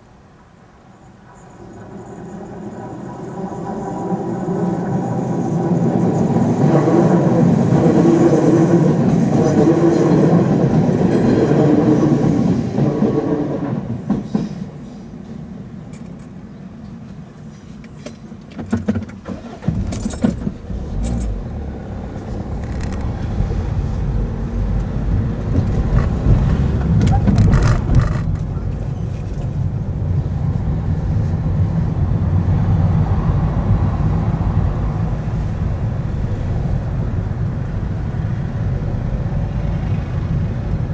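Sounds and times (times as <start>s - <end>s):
car engine and tyre rumble: 15.4s - 40.9s.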